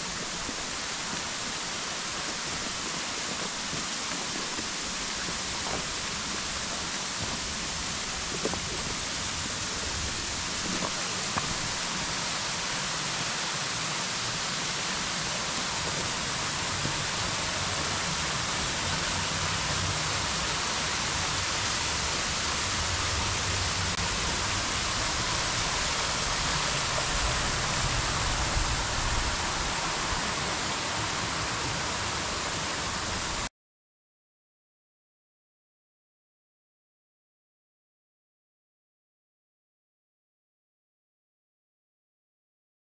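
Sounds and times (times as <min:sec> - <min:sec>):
waterfall rushing: 0:00.0 - 0:33.5.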